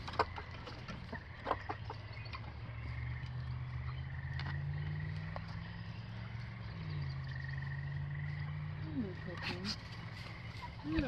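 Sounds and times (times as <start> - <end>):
frogs trilling: 0.0 - 11.0
steady low hum: 0.0 - 11.0.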